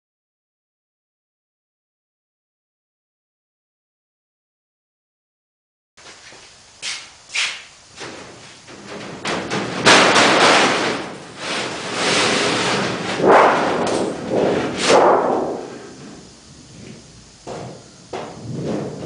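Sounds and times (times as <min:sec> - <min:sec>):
sharp knocks: 0:07.4 - 0:16.2, 0:17.4 - 0:19.0
metal sheet wobbling and rattling: 0:08.0 - 0:19.0.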